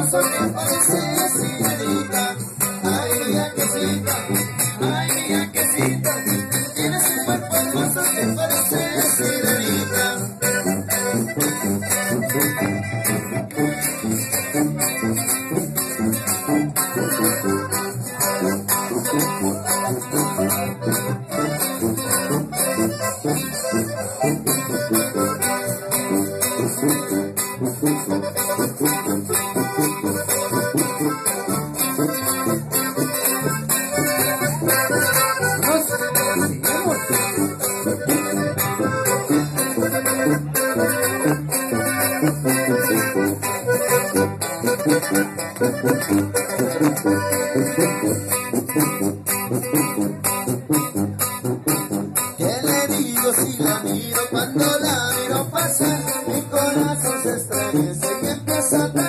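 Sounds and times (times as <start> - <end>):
accordion: 0.0 - 59.0.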